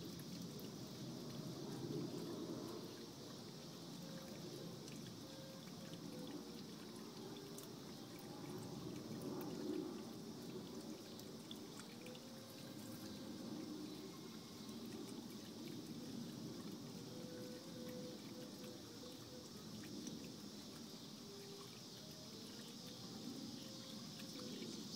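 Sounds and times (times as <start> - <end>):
fountain trickling into basin: 0.0 - 24.9.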